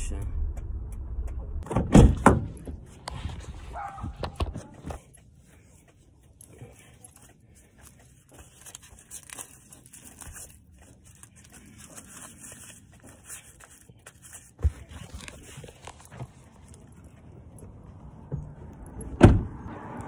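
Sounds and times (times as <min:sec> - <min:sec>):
fabric rustling and rubbing: 0:02.9 - 0:04.4.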